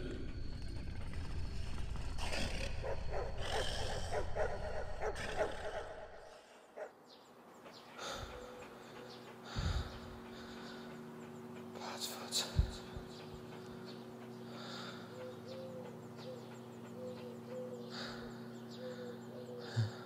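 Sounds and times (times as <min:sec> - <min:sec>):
dog snarling and growling: 0:01.4 - 0:07.0.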